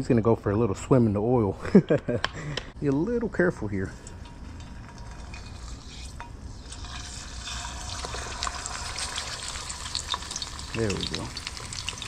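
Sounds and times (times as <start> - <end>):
fish sizzling in hot oil: 4.8 - 12.0.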